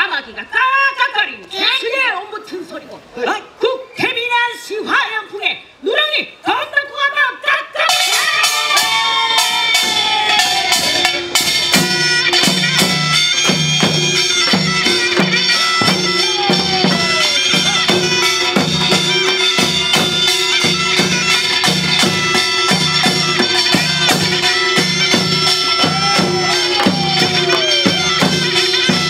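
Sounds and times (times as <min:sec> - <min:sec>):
shawm playing shrill melody: 0:07.9 - 0:29.0
steady drum beat: 0:07.9 - 0:29.0.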